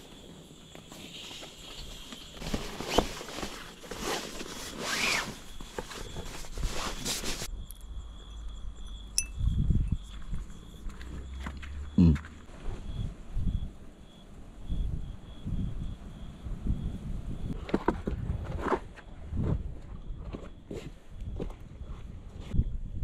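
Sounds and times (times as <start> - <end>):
high insect trill: 0.0 - 17.6.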